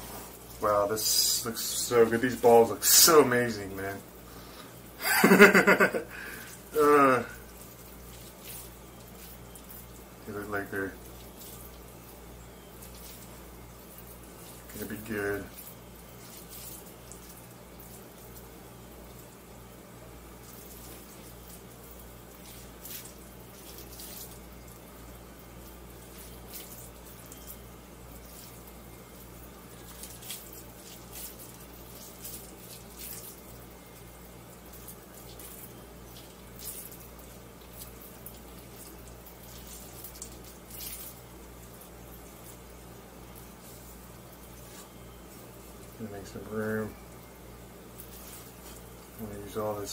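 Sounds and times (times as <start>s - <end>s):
steady low hum: 0.0s - 49.9s.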